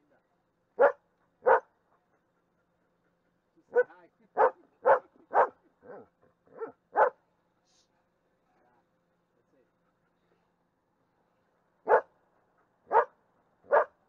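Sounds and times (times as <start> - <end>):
dog barking: 0.8 - 1.7, 3.7 - 7.2, 11.8 - 12.1, 12.9 - 14.0.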